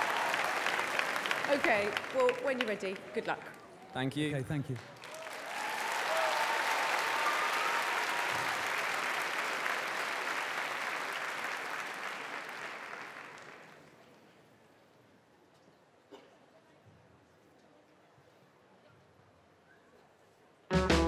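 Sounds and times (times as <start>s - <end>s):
audience applauding: 0.0s - 13.9s.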